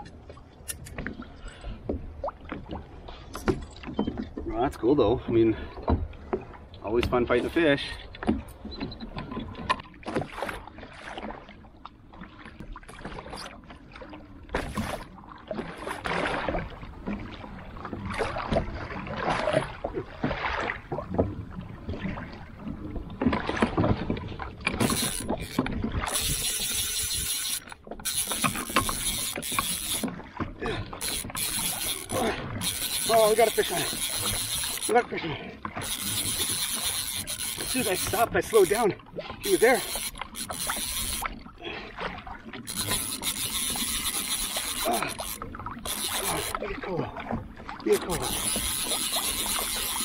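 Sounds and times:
water splashing against kayak hull: 0.0 - 50.0
fishing reel drag buzzing: 24.7 - 30.1, 30.9 - 35.1, 35.7 - 41.4, 42.6 - 46.6, 47.9 - 50.0.

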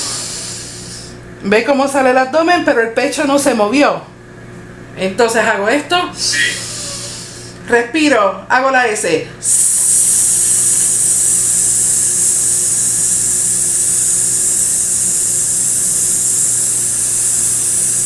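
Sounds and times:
person hissing long s: 0.0 - 1.2, 6.2 - 7.6, 9.4 - 18.0.

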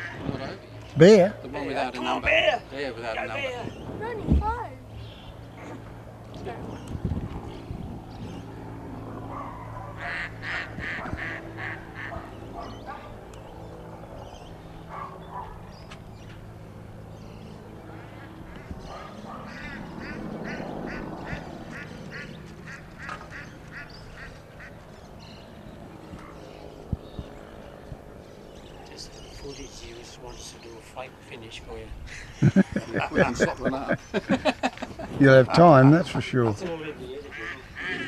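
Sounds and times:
ducks quacking: 0.0 - 0.6, 9.3 - 13.1, 18.0 - 24.8, 35.6 - 38.0.

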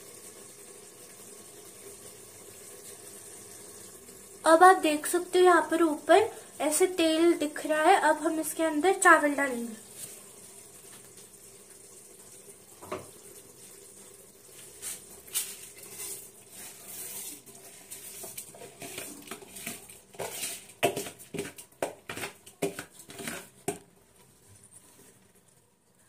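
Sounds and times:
faint steady hum: 0.0 - 18.8
rice pouring into a pot: 14.5 - 23.8
spoon scraping rice grains: 14.8 - 23.8.

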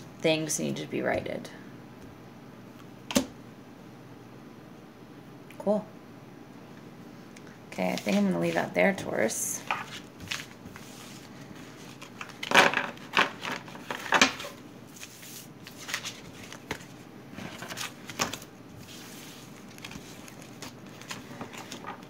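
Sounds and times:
cards being shuffled: 7.9 - 8.7, 9.6 - 22.0.

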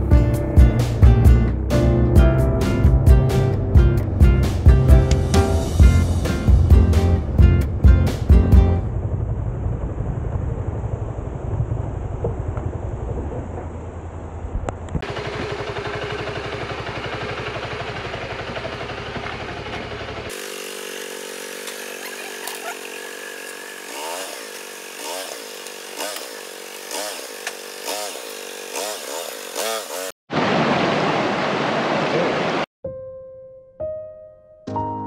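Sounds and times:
motorcycle engine running: 15.0 - 24.9.

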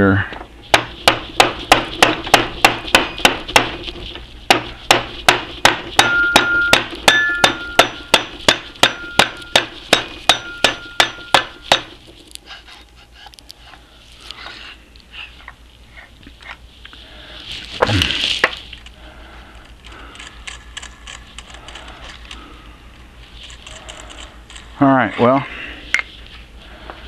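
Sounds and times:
hammer blows on metal spindle: 4.5 - 12.0
clear ringing tone: 6.0 - 8.2, 8.9 - 9.6.

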